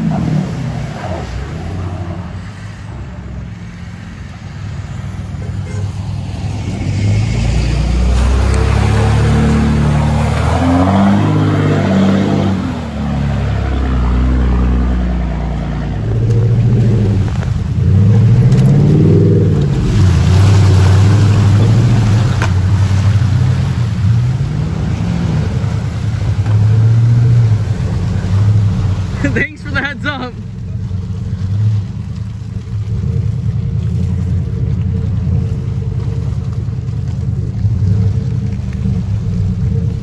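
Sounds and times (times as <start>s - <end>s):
truck engine revving: 0.0s - 40.0s.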